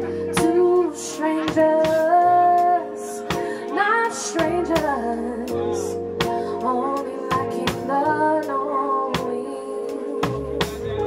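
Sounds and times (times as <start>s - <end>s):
drum kit and cymbal hits: 0.0s - 2.3s, 3.3s - 5.0s, 6.2s - 8.0s, 10.2s - 11.0s
live band playing: 0.0s - 11.0s
woman singing: 0.2s - 10.9s.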